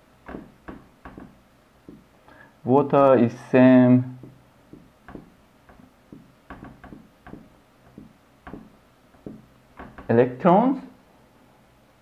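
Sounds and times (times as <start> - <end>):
marker writing on a whiteboard: 4.2 - 10.2.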